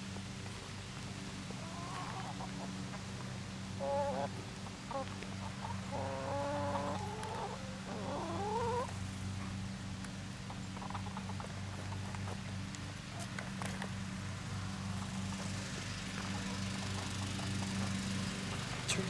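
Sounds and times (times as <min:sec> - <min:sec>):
hens calling: 0:01.5 - 0:02.9, 0:03.7 - 0:09.0.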